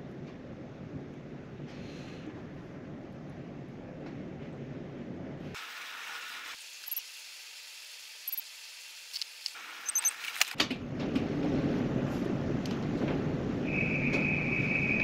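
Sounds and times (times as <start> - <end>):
low rumble of train equipment: 0.0 - 5.5, 10.6 - 15.0.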